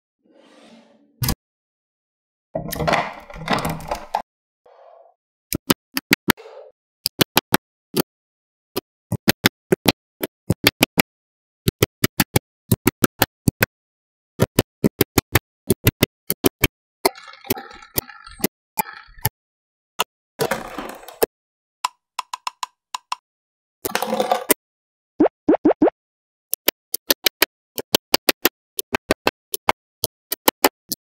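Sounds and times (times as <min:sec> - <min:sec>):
magnetic balls clicking together: 0:11.6 - 0:13.7, 0:14.4 - 0:19.3, 0:26.5 - 0:31.0.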